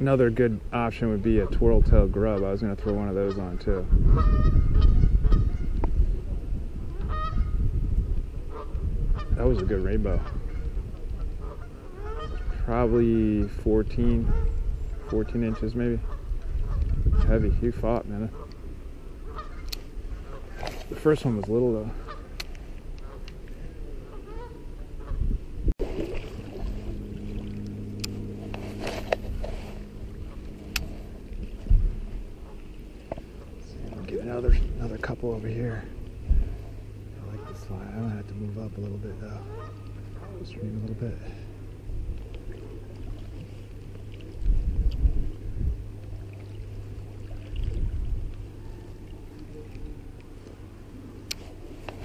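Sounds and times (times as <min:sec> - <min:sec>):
low motor hum: 0:00.0 - 0:52.0
low rumbles on microphone: 0:03.5 - 0:18.4, 0:25.0 - 0:37.5, 0:38.1 - 0:52.0
creek water running: 0:25.8 - 0:52.0.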